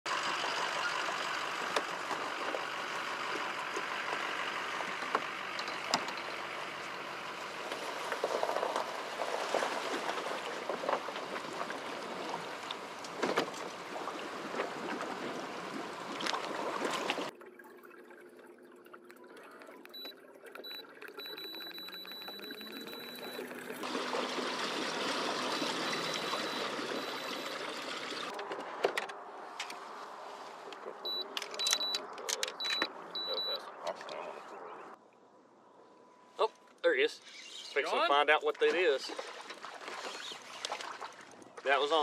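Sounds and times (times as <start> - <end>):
gentle water: 0.1 - 28.3, 29.9 - 35.5, 37.2 - 42.0
water rushing along kayak hull: 6.4 - 17.3, 20.0 - 28.3
faint high steady tone: 19.9 - 23.7.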